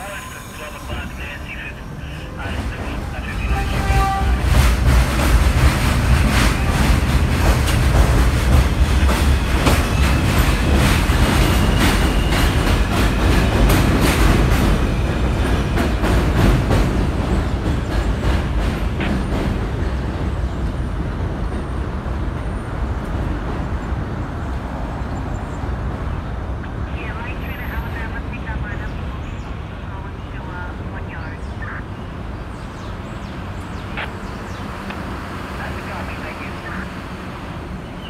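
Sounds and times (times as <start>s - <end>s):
train rumble: 0.0s - 38.0s
train wheels clacking over rail joints: 3.3s - 20.8s.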